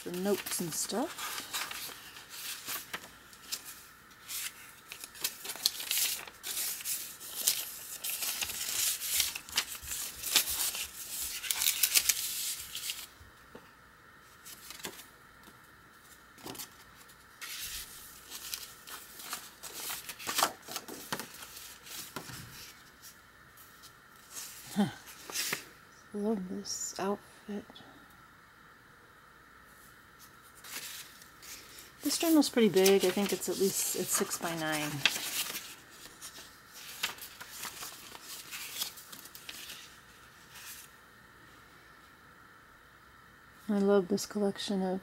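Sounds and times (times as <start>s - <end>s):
paper pages turning: 0.0s - 13.2s, 14.3s - 25.7s, 30.2s - 40.9s.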